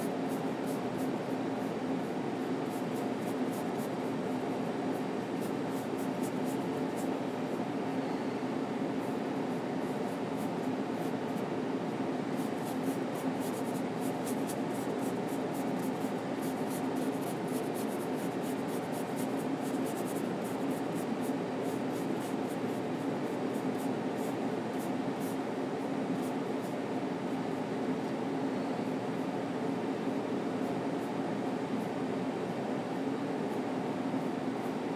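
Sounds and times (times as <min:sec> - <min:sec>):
low room hum: 0:00.0 - 0:34.9
paintbrush scratchy strokes: 0:02.6 - 0:04.0, 0:04.9 - 0:07.1, 0:12.4 - 0:22.6.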